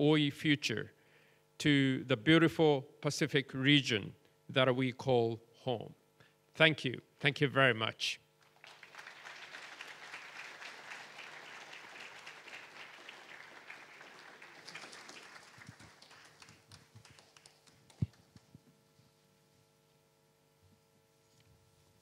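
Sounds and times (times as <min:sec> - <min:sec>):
audience applauding: 0:08.4 - 0:18.5.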